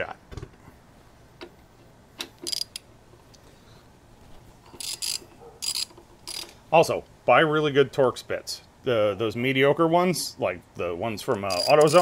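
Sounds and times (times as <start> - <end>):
ratchet clicking: 2.3 - 2.9, 4.7 - 6.6, 11.5 - 12.0.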